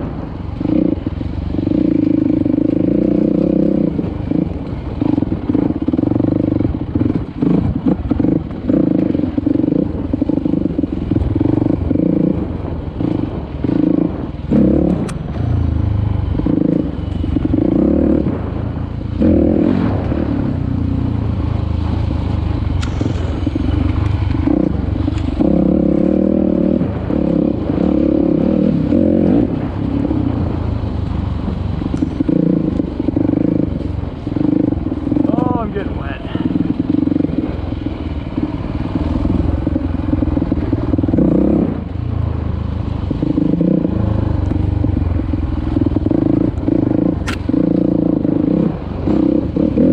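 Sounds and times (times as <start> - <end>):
dirt bike engine revving: 0.0 - 42.0, 42.8 - 49.9
bike rattling and knocking: 21.8 - 26.3.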